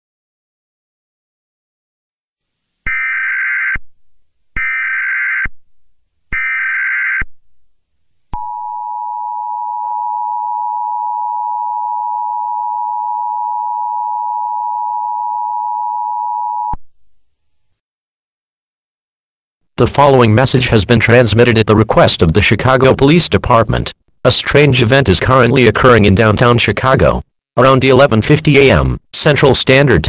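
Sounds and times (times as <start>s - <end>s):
steady dual tone alert signal: 2.9s - 3.8s, 8.4s - 16.8s.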